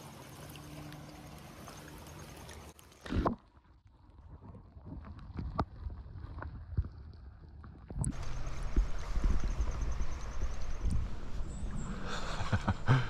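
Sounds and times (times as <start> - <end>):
creek water rushing: 0.0 - 3.1, 8.1 - 13.0
wind on microphone: 4.3 - 12.9.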